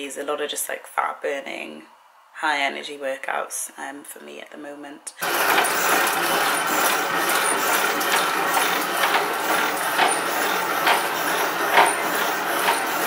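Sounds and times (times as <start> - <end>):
cardio machine whirring: 5.2 - 13.0
knock from machine strides: 5.2 - 13.0.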